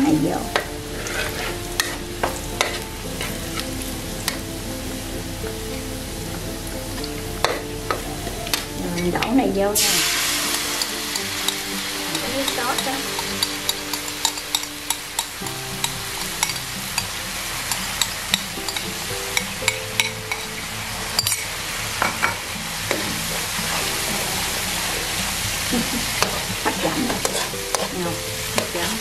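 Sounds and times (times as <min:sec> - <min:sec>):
sauce sizzling in hot oil: 0:00.0 - 0:29.0
metal spatula scraping wok: 0:00.5 - 0:03.6, 0:09.8 - 0:21.6, 0:26.2 - 0:29.0.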